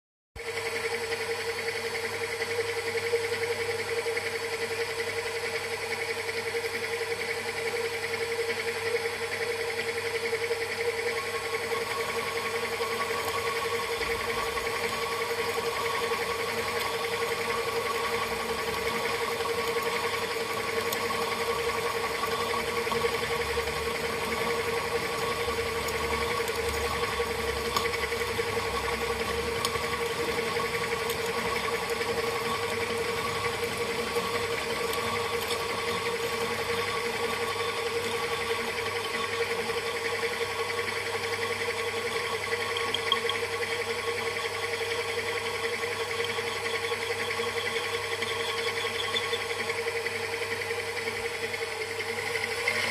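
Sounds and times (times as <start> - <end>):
milling machine whining: 0.4 - 52.9.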